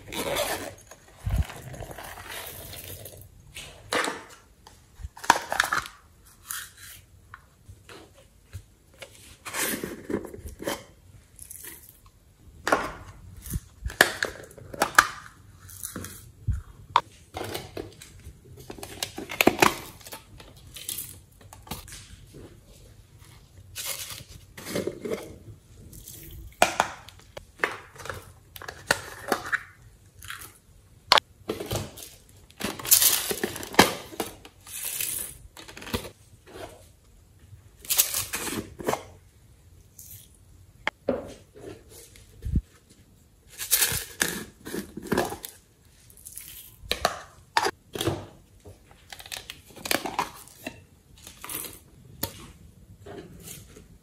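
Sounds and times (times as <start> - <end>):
plastic containers clicking and crinkling: 3.5 - 6.0, 7.8 - 16.2, 16.9 - 22.1, 26.1 - 36.6, 46.8 - 53.9.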